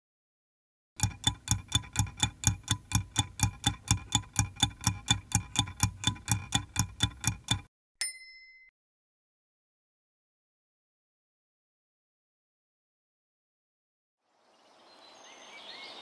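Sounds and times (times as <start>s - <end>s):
stopwatch ticking: 1.0s - 7.7s.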